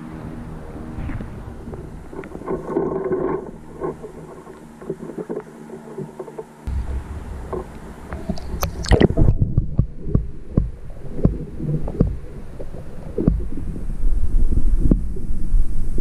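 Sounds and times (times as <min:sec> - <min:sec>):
underwater stream rumble: 0:00.0 - 0:16.0
underwater clicks and knocks: 0:07.5 - 0:12.2.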